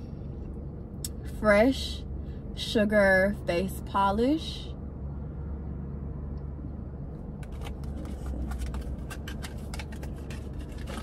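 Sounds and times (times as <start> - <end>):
car engine rumble: 0.0 - 11.0
packaging clicking and rustling: 7.4 - 11.0.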